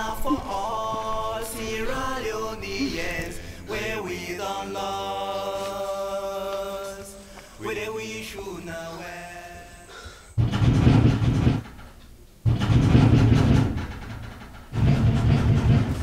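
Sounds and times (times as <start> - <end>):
steady low drone: 0.0 - 7.8
voice singing slow chant: 0.0 - 10.4.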